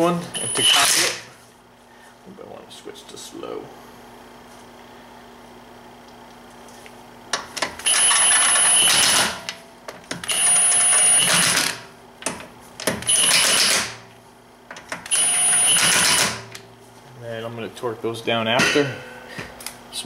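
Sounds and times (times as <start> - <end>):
impact gun whining and rattling: 7.3 - 14.0, 14.7 - 16.7.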